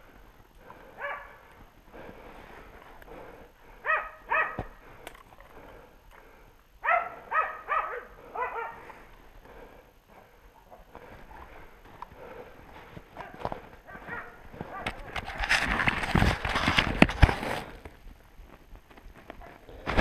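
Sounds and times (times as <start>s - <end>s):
dogs barking: 0.8s - 1.5s, 3.8s - 4.8s, 6.8s - 9.0s, 13.2s - 15.2s
footsteps crunching in snow: 11.0s - 20.0s.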